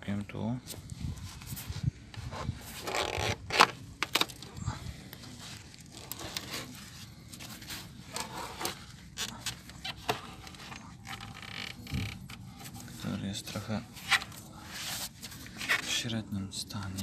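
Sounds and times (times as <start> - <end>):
handling noise crackling and rustling: 0.6 - 16.1.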